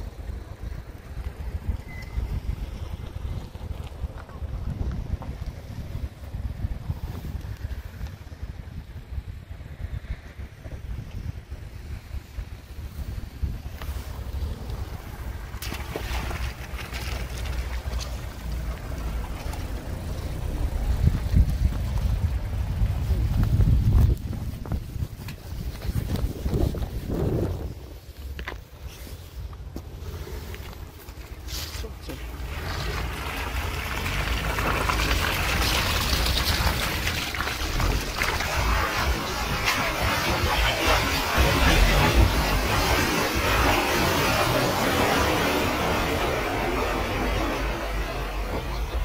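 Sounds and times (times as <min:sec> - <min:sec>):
vehicle low rumble: 0:00.0 - 0:49.0
tyres crackling over wet mud: 0:11.9 - 0:49.0.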